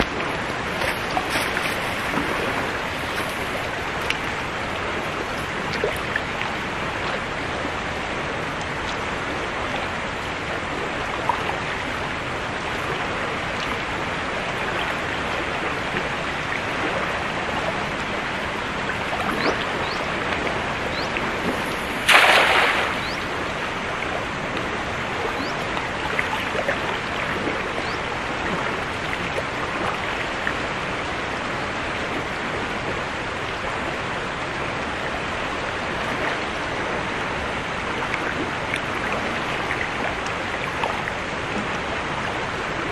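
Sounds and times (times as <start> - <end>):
river current rushing: 0.0 - 42.9
net splashing into water: 21.4 - 23.4.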